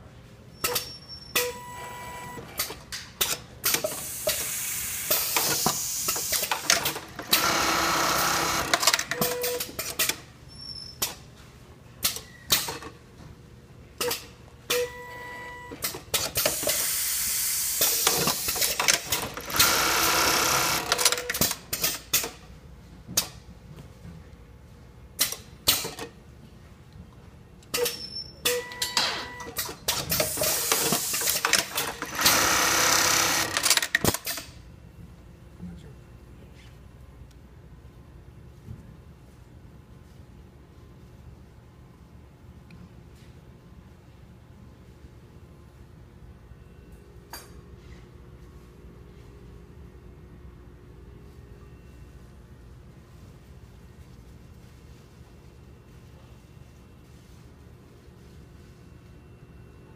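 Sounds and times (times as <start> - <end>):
sewing machine stitching: 6.2 - 9.6, 18.1 - 21.5, 30.2 - 34.2
sharp machine clicks: 30.2 - 34.5.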